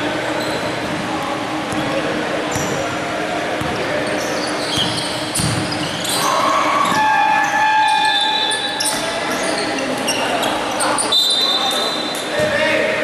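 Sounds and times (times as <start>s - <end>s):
basketball bouncing on hardwood: 4.8s - 5.8s.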